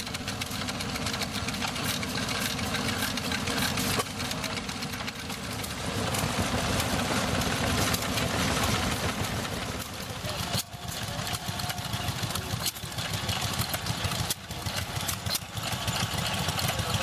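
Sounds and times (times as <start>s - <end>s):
stationary engines chugging: 0.0s - 17.0s.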